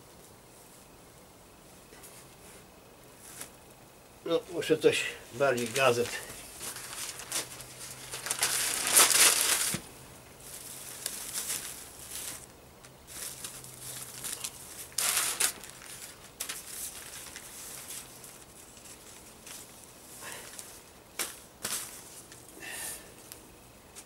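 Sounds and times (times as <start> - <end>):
newspaper crumpling: 5.4 - 22.5.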